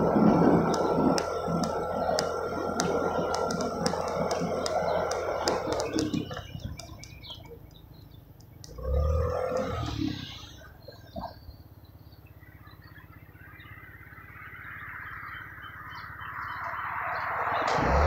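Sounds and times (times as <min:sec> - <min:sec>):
regular ticking: 0:00.0 - 0:13.2
small gasoline engine running: 0:00.0 - 0:13.6.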